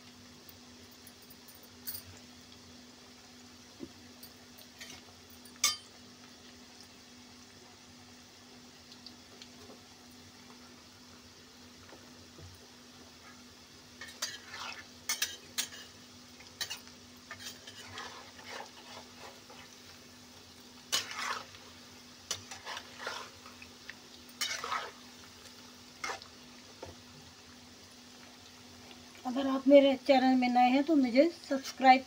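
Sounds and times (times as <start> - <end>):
food deep-frying in oil: 0.0 - 32.0
spatula scraping a pan: 4.8 - 5.1, 14.0 - 16.0, 16.6 - 19.8, 20.9 - 23.6, 24.4 - 25.2, 26.0 - 26.3.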